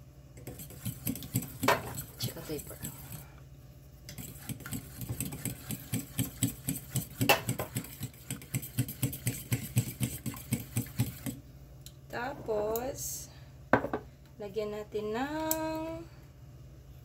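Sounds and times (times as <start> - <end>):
knock on bowl: 13.7 - 14.0.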